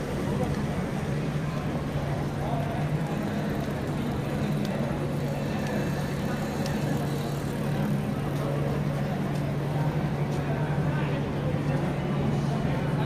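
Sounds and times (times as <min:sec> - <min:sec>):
city street traffic: 0:00.0 - 0:13.0
faint clicks: 0:06.5 - 0:06.9.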